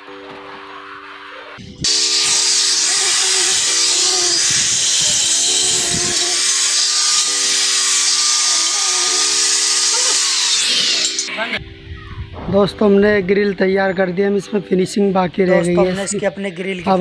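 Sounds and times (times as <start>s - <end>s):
angle grinder grinding steel: 1.6s - 11.6s.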